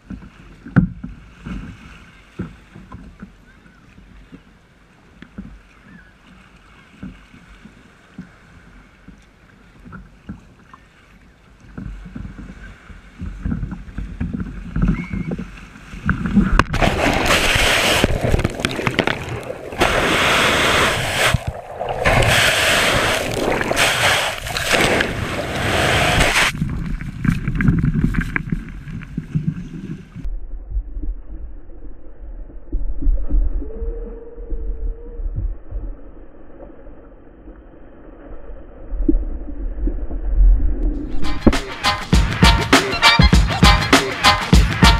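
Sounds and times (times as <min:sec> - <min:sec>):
wind: 0:00.0 - 0:44.9
wash of waves: 0:04.2 - 0:29.4
churning splashing water: 0:05.3 - 0:29.5.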